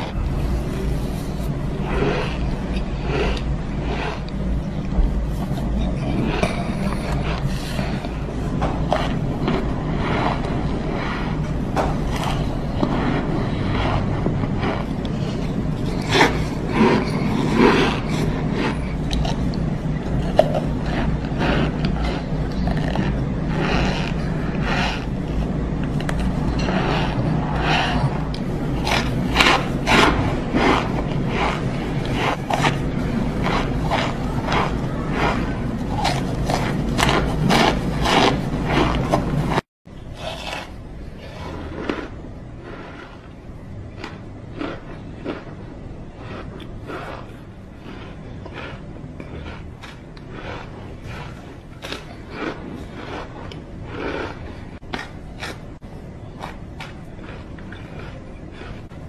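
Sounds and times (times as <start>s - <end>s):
cornstarch crunching and squeaking: 0.0s - 42.2s
low hum: 0.0s - 59.0s.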